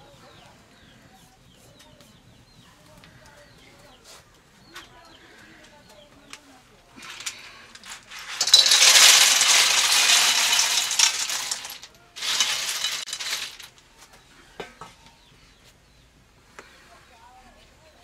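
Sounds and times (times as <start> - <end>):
snail shells clattering in a wok: 7.0 - 13.8.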